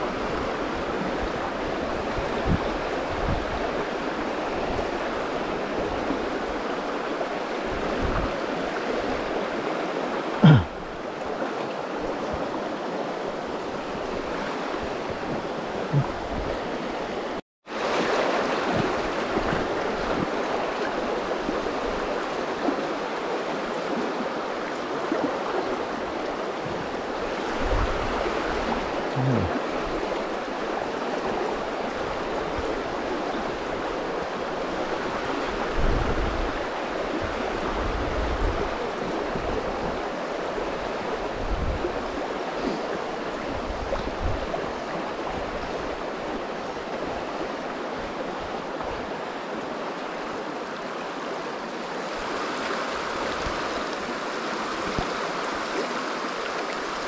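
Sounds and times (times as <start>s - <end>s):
flowing river water: 0.0s - 57.0s.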